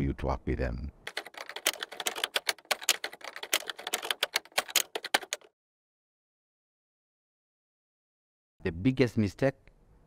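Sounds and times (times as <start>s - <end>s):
keyboard typing clacks: 1.1s - 5.5s.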